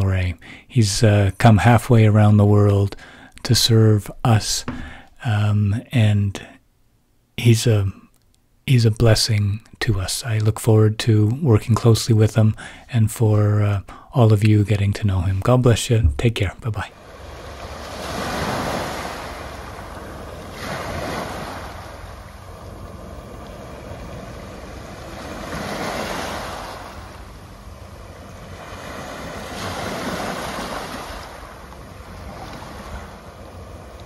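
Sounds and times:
waves washing up pebble beach: 0:17.0 - 0:22.1, 0:23.1 - 0:27.3, 0:28.3 - 0:33.2.

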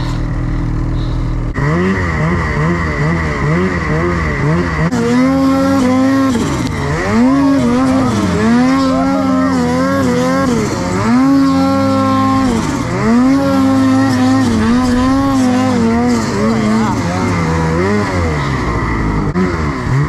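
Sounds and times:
snowmobile engine at high revs: 0:00.0 - 0:20.0.

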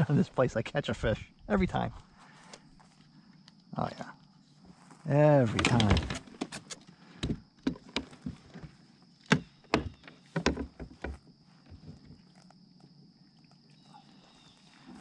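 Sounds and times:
knocks on plastic kayak hull: 0:09.3 - 0:11.2.

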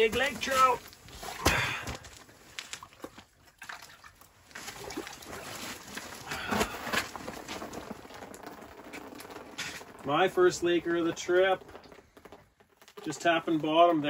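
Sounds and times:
water sloshing and dripping: 0:00.1 - 0:14.0.

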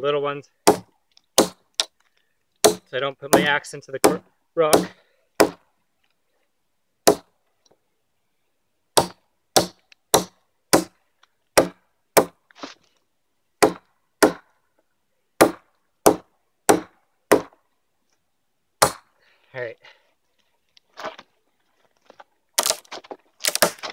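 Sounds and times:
hatchet chopping log: 0:00.6 - 0:02.0, 0:02.6 - 0:05.6, 0:07.0 - 0:07.3, 0:09.0 - 0:11.0, 0:11.6 - 0:12.4, 0:13.6 - 0:14.5, 0:15.4 - 0:17.6, 0:18.8 - 0:19.1, 0:22.6 - 0:22.8, 0:23.4 - 0:23.9.

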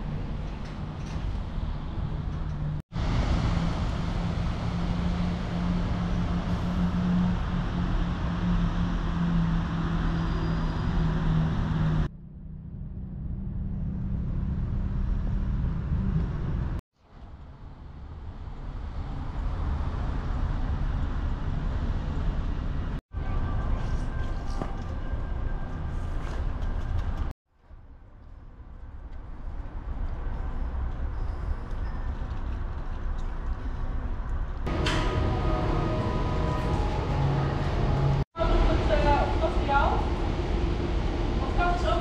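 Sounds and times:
traffic rumble: 0:00.0 - 0:42.0
low engine hum: 0:32.2 - 0:42.0.

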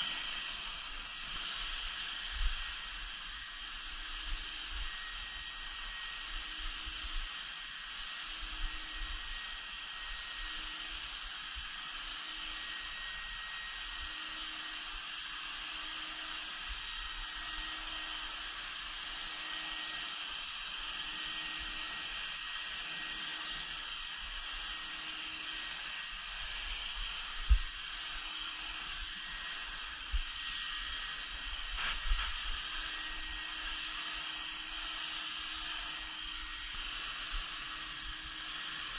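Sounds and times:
paint sprayer hissing: 0:00.0 - 0:04.0, 0:25.4 - 0:38.9.

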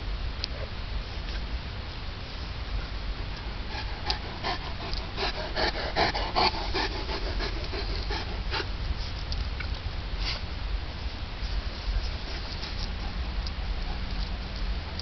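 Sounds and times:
dog panting: 0:03.2 - 0:09.2, 0:12.0 - 0:14.7.

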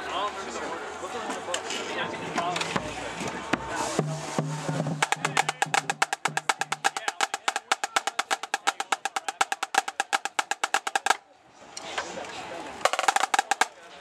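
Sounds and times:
drumline drumstick strokes: 0:02.5 - 0:11.2, 0:12.8 - 0:14.0.

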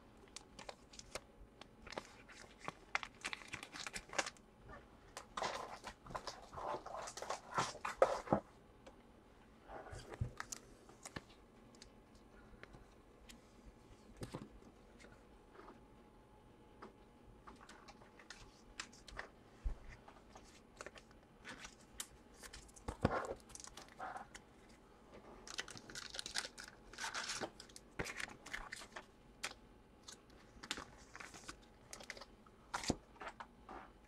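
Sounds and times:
crinkly rustling: 0:01.8 - 0:08.5, 0:17.4 - 0:34.0.

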